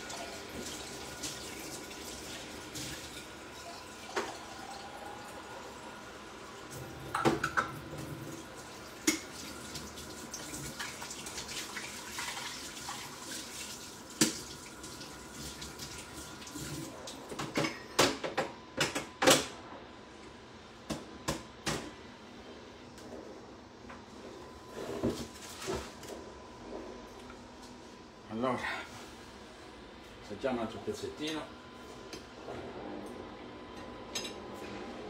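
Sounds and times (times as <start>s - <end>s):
water running from tap: 0.0s - 5.8s, 6.7s - 17.2s.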